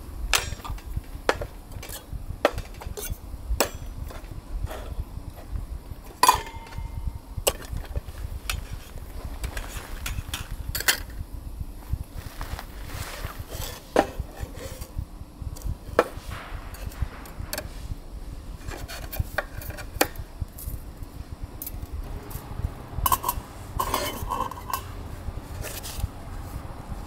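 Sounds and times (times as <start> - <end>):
metal cookware clinking: 6.2 - 7.0, 23.1 - 24.9.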